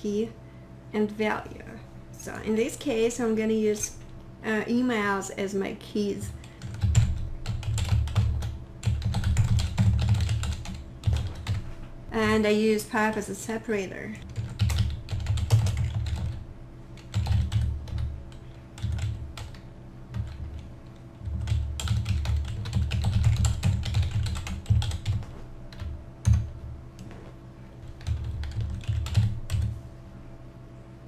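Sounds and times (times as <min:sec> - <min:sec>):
faint steady hum: 0:00.0 - 0:31.0
typing on computer keyboard: 0:06.6 - 0:11.6, 0:14.3 - 0:16.4, 0:17.0 - 0:18.1, 0:18.8 - 0:26.4, 0:27.9 - 0:29.7.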